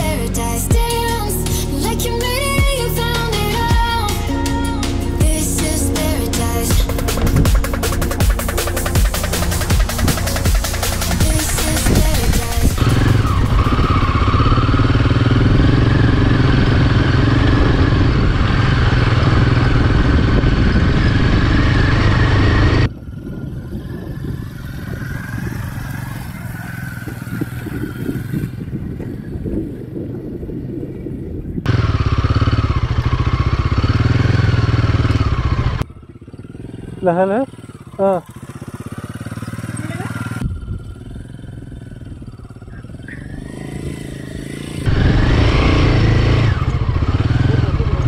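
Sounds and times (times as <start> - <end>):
motorcycle engine under load: 3.3 - 30.2, 30.9 - 48.0.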